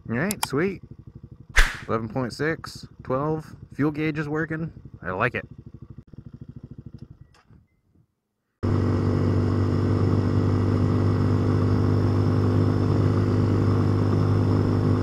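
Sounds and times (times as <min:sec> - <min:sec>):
motorcycle engine cruising: 0:00.0 - 0:08.0, 0:08.6 - 0:15.0
wind rushing: 0:01.6 - 0:01.9.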